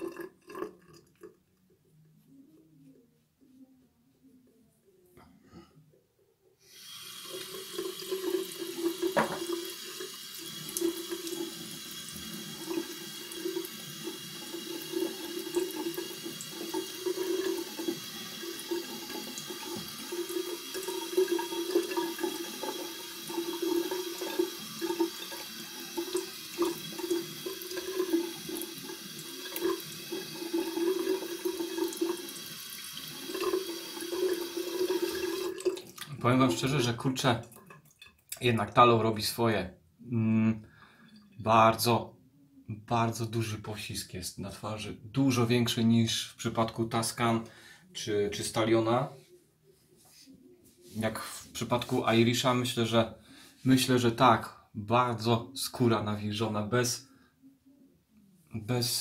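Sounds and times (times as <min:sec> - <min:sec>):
tap running into a sink: 0:07.2 - 0:12.0, 0:12.6 - 0:36.1.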